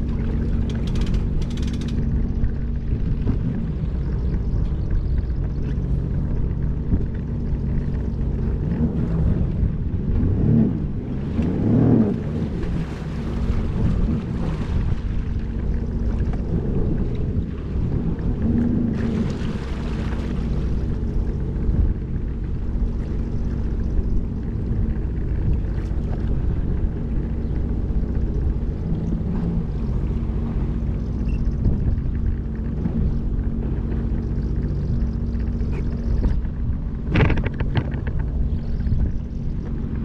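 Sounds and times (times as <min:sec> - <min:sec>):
jet ski engine idling: 0:00.0 - 0:40.0
rattle of knocks: 0:00.5 - 0:02.1.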